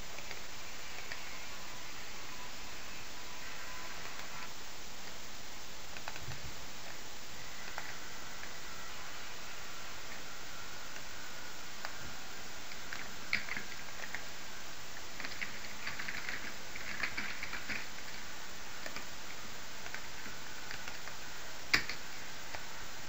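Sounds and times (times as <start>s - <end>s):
steady hiss: 0.0s - 23.0s
keyboard typing: 0.2s - 1.3s, 5.9s - 7.0s, 12.7s - 14.3s, 15.2s - 18.2s, 18.8s - 22.6s.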